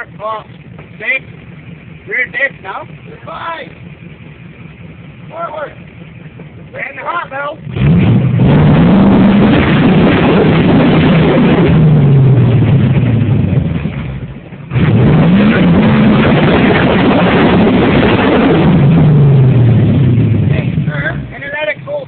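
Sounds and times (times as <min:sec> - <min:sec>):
engine revving hard: 0:06.8 - 0:13.8, 0:14.7 - 0:21.8.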